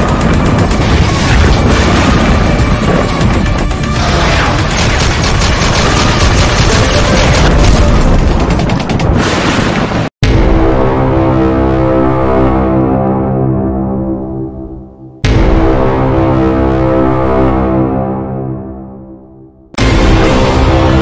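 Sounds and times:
rapid gunfire: 0.0 - 9.7
deep booming impacts: 0.0 - 11.9, 15.2 - 17.2.

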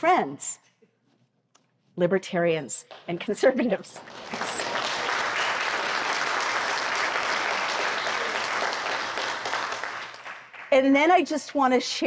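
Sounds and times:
audience applauding: 3.9 - 10.7.

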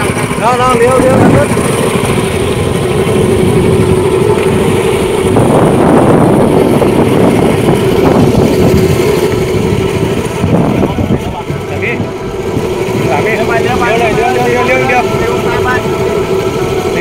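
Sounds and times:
boat engine idling: 0.0 - 17.0.

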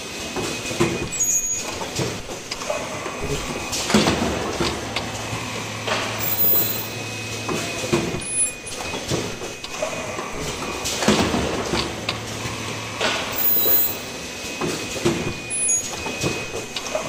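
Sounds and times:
pneumatic cylinders clacking: 0.2 - 17.0.

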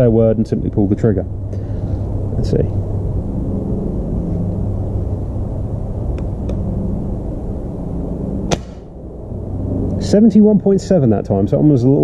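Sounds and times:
steady low hum: 0.0 - 12.0
air rifle dry-fire shot: 8.5 - 8.9.

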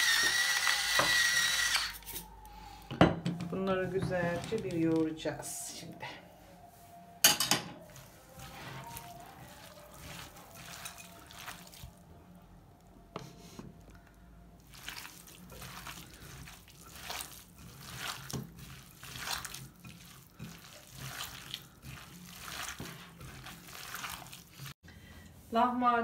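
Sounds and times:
hands squishing minced meat: 7.8 - 12.2, 14.6 - 24.8.

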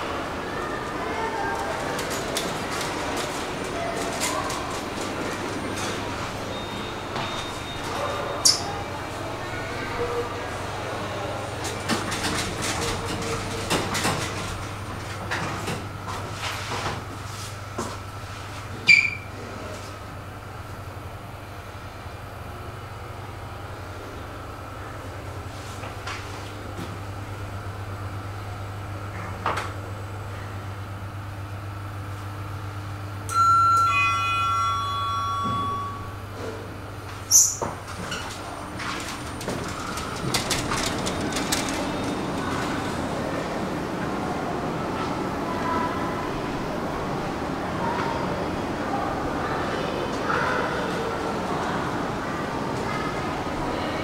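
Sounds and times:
elevator rattles and clicks: 0.0 - 17.2, 37.0 - 44.2
elevator hum: 0.0 - 54.0
electronic two-note chime: 33.3 - 36.2.

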